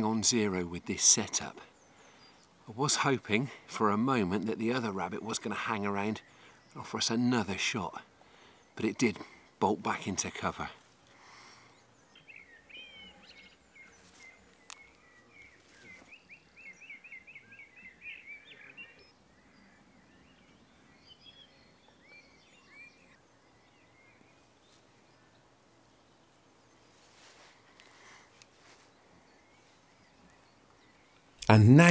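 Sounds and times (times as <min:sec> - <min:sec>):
small bird chirping: 0:11.6 - 0:25.4.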